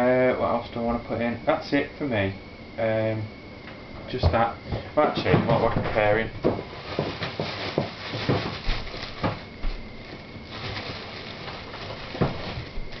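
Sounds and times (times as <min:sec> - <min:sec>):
objects knocking and clattering: 0:04.3 - 0:09.5.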